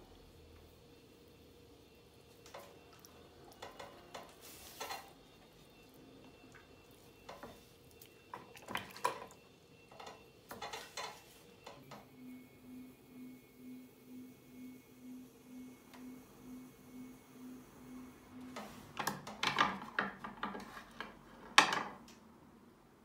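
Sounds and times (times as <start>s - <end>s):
faint steady hum: 0.0s - 23.0s
hands working wet clay: 7.9s - 9.4s.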